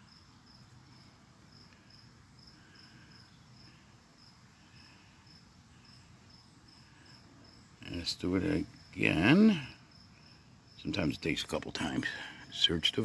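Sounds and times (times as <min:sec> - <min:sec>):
faint cricket chirping: 0:00.0 - 0:13.0.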